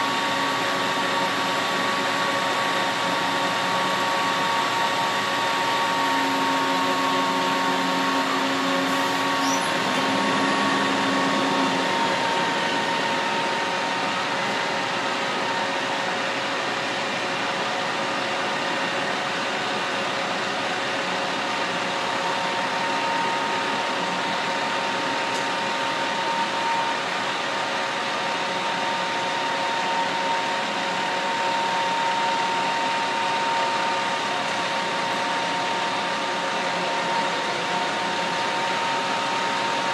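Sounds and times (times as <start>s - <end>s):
faint steady whines: 0.0s - 39.9s
trucks idling: 4.9s - 16.2s.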